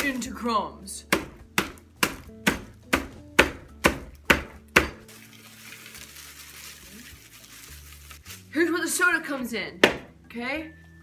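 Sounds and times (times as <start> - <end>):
plastic bag rustling: 5.1 - 8.8.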